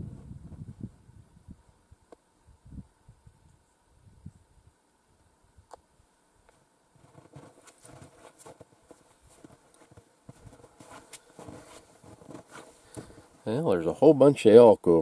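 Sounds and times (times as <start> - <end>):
footsteps in snow: 6.9 - 13.6.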